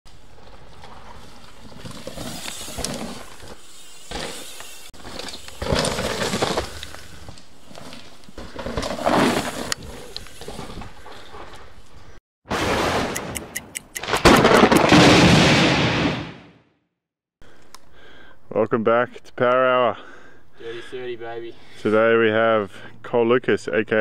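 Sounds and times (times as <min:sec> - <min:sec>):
bike tyres skidding on dirt: 0:00.1 - 0:13.0.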